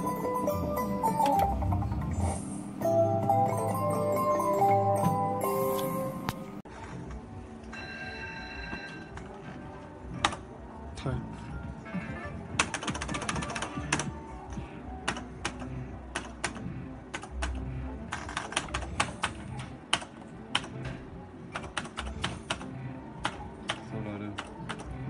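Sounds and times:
slot machine electronic music: 0.0s - 6.6s.

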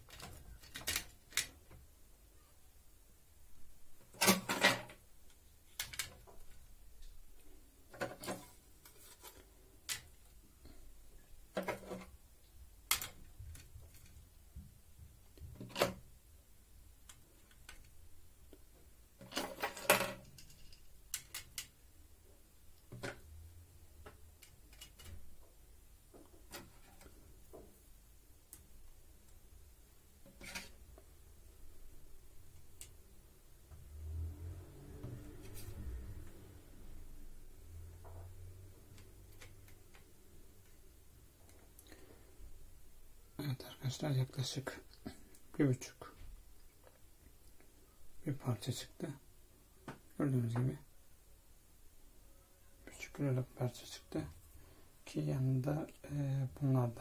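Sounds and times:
circuit boards clacking and rattling: 0.0s - 1.8s, 4.0s - 6.7s, 11.5s - 12.2s, 15.4s - 16.1s, 19.2s - 21.8s, 24.0s - 25.4s.

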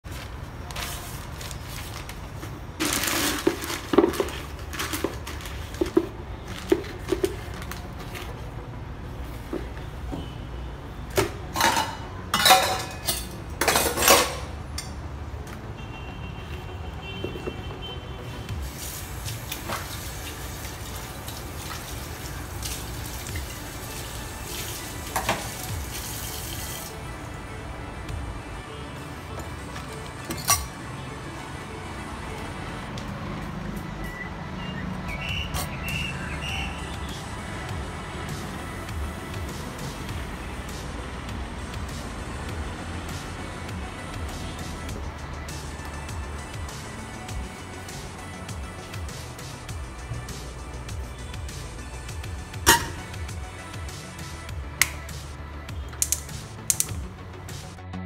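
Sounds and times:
plastic rustling and crinkling: 0.0s - 8.6s
background music: 2.6s - 58.0s
metal vessels clinking: 2.8s - 8.3s, 11.2s - 15.0s, 30.2s - 30.8s, 52.7s - 53.2s.

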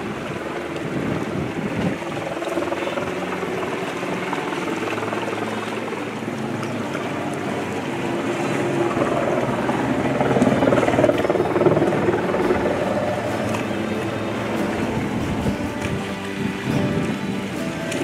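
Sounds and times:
motorboat engines droning: 0.0s - 18.0s.

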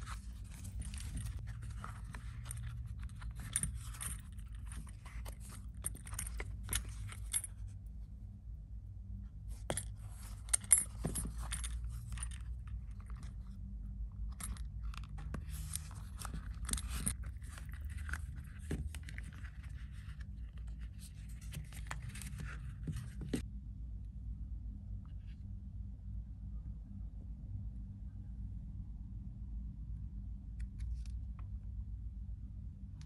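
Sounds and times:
leather strap rustling: 0.0s - 7.7s, 9.6s - 23.4s
metal buckle clinking: 0.0s - 7.7s, 9.6s - 13.4s, 14.2s - 19.7s
low steady hum: 0.0s - 33.0s.

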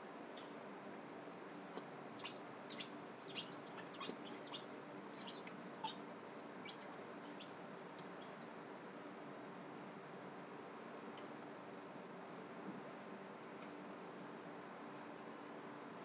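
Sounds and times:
steady low hum: 0.0s - 16.0s
crickets chirping: 0.4s - 6.0s, 10.2s - 10.4s, 12.3s - 12.5s.

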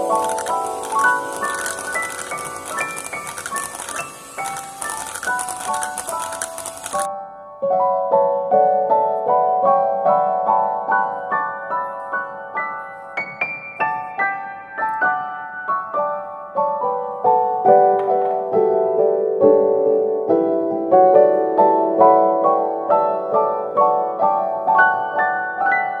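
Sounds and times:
piano melody: 0.0s - 26.0s.

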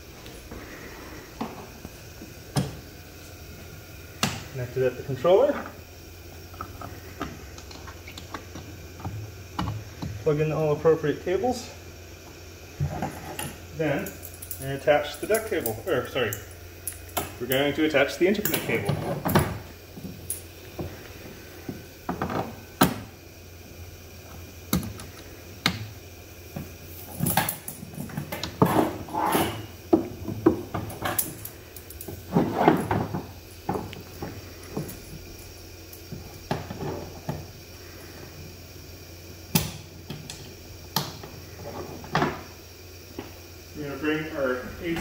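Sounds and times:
cable scraping and rustling: 28.0s - 29.7s, 32.0s - 33.2s.

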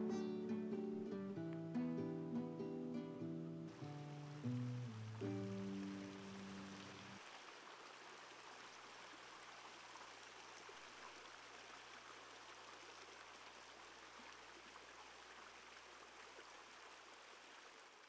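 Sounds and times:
creek running over stones: 3.7s - 18.0s.

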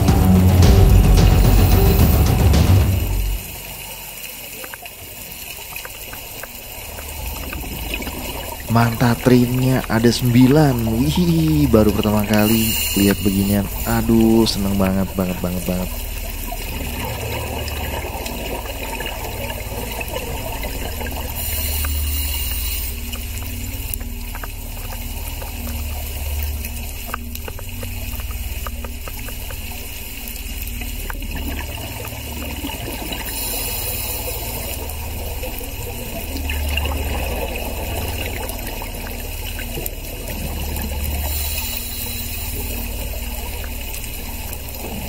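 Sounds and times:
scuba exhaust bubbles rushing: 0.0s - 45.0s
underwater low rumble: 0.0s - 45.0s
faint clicks: 21.1s - 35.7s.

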